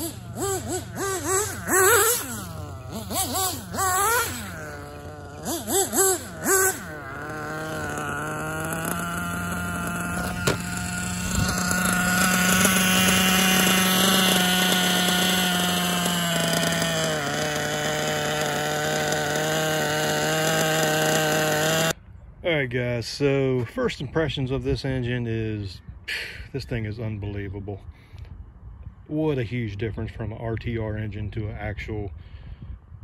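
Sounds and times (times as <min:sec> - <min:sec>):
nitro engine revving and idling: 0:00.0 - 0:22.0.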